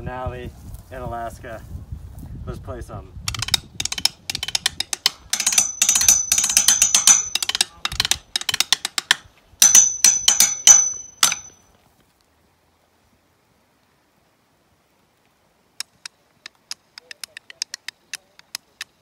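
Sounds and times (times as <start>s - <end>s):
drumsticks hitting metal railing: 3.3s - 11.6s.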